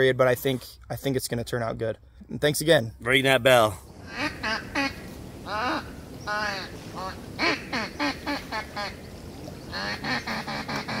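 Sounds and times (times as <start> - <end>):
duck quacking: 4.1 - 9.0, 9.7 - 11.0.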